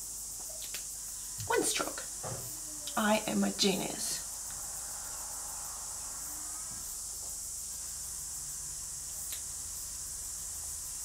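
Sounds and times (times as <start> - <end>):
high-pitched background hiss: 0.0 - 11.0
faint low hum: 0.2 - 11.0.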